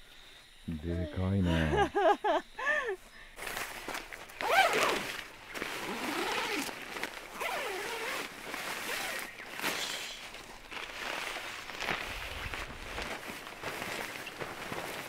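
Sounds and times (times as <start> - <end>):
tent fabric rustling: 3.4 - 15.0
zipper being pulled: 4.4 - 9.3.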